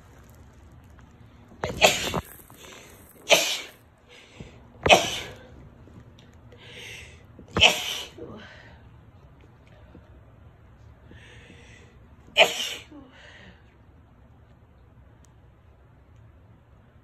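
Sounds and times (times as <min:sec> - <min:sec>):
woman sneezing: 0:07.6 - 0:08.2, 0:12.4 - 0:13.0
short breaths: 0:11.0 - 0:12.0.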